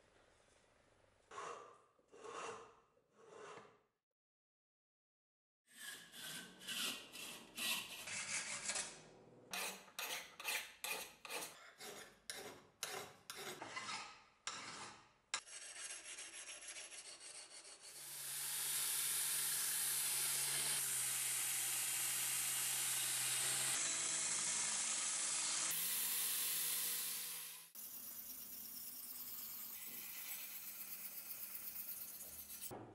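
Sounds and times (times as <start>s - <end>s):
belt grinder grinding steel: 22.6s - 32.7s.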